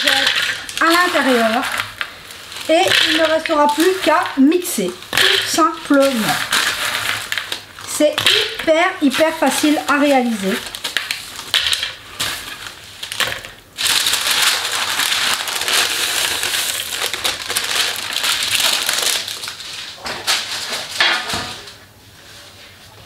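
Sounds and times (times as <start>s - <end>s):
nut pieces clicking into plastic bowl: 0.0s - 12.4s
baking paper crinkling: 0.0s - 23.0s.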